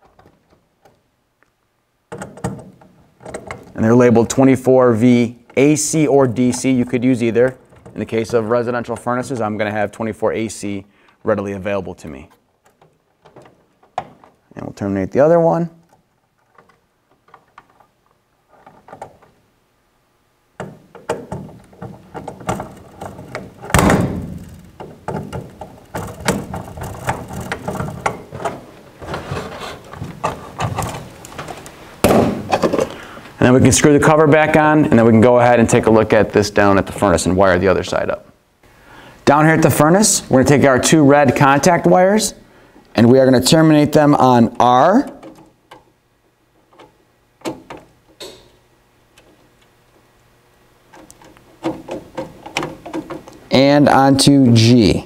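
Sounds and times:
hands tapping wires into terminals: 12.3 - 14.5, 20.6 - 28.6, 50.9 - 53.5.

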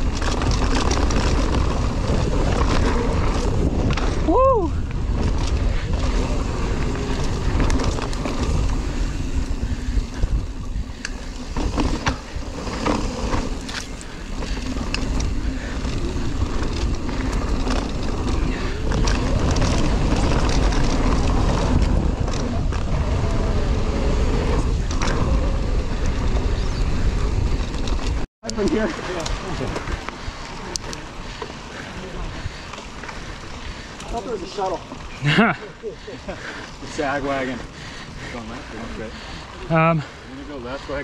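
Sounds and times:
wind on microphone: 0.0 - 28.2
bike tyre noise: 0.0 - 41.0.

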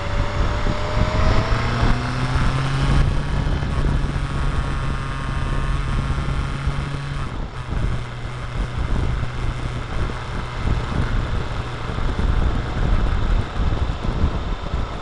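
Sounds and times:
motorcycle engine rumble: 0.0 - 15.0
steady low hum: 0.0 - 15.0.

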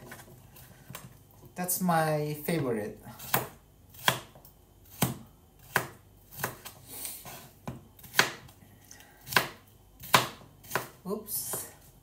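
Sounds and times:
knife slicing pepper: 3.2 - 8.5, 9.2 - 11.6.

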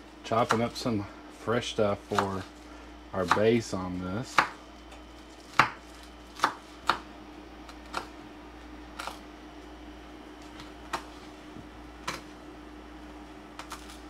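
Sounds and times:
knife chopping on wooden board: 0.4 - 0.8, 2.0 - 2.5, 3.2 - 3.6, 4.2 - 7.1.

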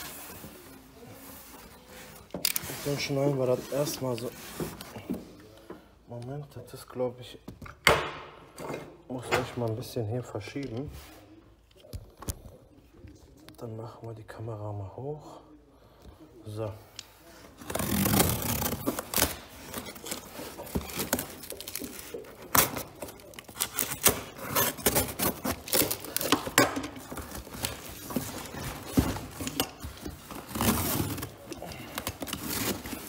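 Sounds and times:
cardboard scraping and crinkling: 0.0 - 5.4, 17.5 - 33.0
packing tape tearing: 17.6 - 33.0.

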